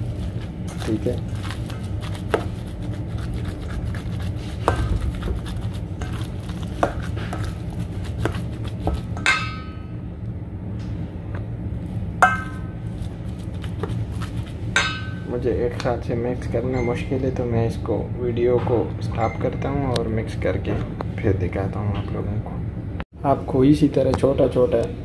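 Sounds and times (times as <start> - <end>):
spoon stirring in metal bowl: 0.0 - 9.9, 12.2 - 15.9
low hum: 0.0 - 23.1
spoon clinking on bowl: 12.2 - 12.7, 16.7 - 17.1.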